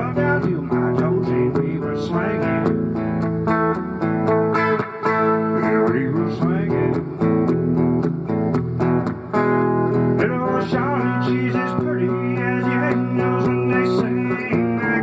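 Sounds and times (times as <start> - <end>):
man singing country song: 0.0 - 3.6, 4.5 - 7.6, 10.1 - 15.0
strummed guitar chords: 0.0 - 15.0.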